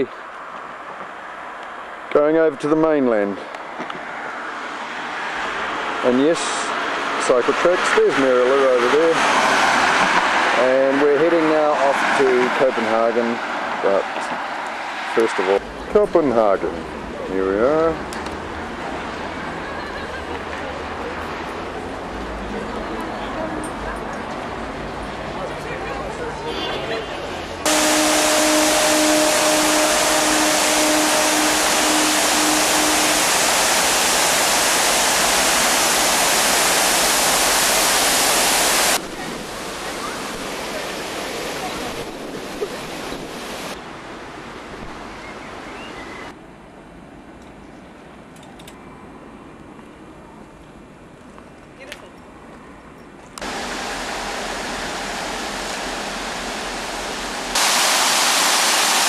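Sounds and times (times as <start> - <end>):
fountain water splashing: 27.6 - 43.8, 53.4 - 59.0.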